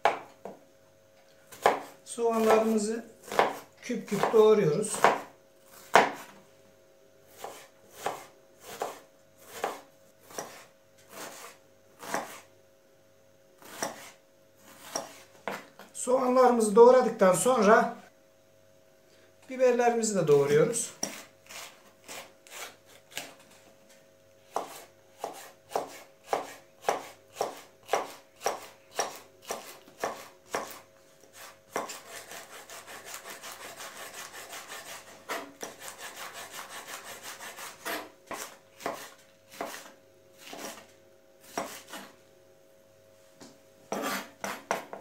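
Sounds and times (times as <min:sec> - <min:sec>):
knife chopping on wooden board: 0:00.0 - 0:00.6, 0:01.5 - 0:06.3, 0:07.4 - 0:12.5, 0:13.6 - 0:15.7, 0:21.0 - 0:23.4, 0:24.5 - 0:40.8, 0:41.4 - 0:42.1, 0:43.9 - 0:45.0.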